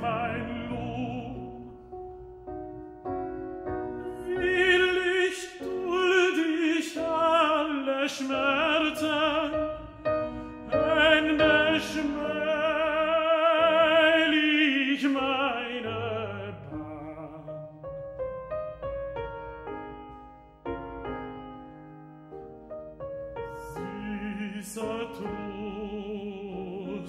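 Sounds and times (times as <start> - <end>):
operatic tenor singing: 0.0 - 2.1, 4.1 - 18.0, 23.5 - 27.0
grand piano: 0.0 - 27.0.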